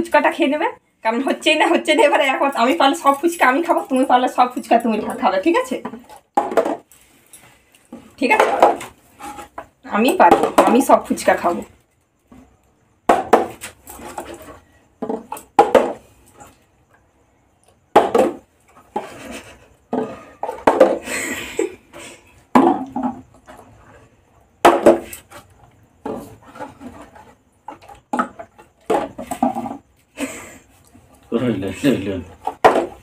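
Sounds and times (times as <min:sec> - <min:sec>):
plastic bottle landing on table: 0:06.4 - 0:06.8, 0:15.0 - 0:16.0, 0:18.0 - 0:18.4, 0:19.9 - 0:21.0, 0:22.5 - 0:23.2, 0:24.6 - 0:25.1, 0:32.5 - 0:33.0.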